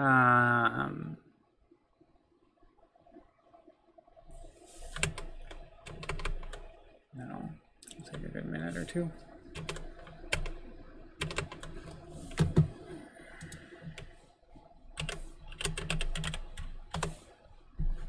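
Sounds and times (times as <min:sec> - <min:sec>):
computer keyboard typing: 0:04.8 - 0:06.8, 0:09.4 - 0:12.8, 0:13.4 - 0:14.2, 0:15.0 - 0:18.0.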